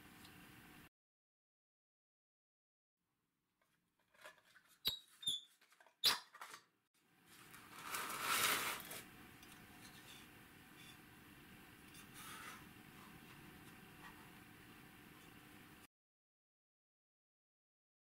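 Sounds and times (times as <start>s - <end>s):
metal scraping against frame: 11.9s - 13.4s.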